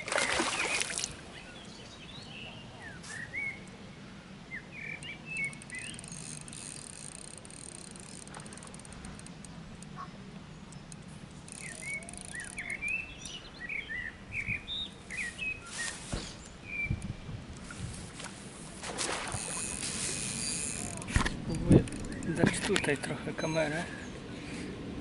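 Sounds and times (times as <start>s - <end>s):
small birds chirping: 4.5s - 7.1s, 9.1s - 17.1s, 20.4s - 24.6s.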